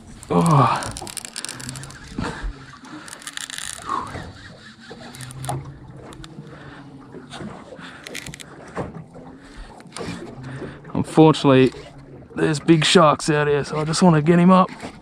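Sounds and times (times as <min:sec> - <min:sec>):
fishing gear clicks and knocks: 0:00.0 - 0:06.6, 0:07.3 - 0:08.9
low hum: 0:00.0 - 0:11.0.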